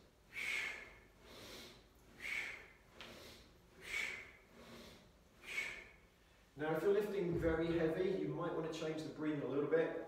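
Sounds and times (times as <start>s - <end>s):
man breathing hard: 0.2s - 6.6s.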